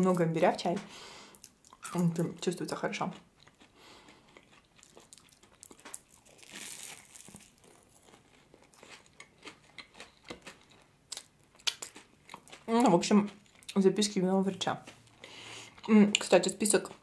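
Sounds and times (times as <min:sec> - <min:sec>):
eating crunches and clicks: 0:03.1 - 0:14.2
puff pastry crackling: 0:03.8 - 0:10.6.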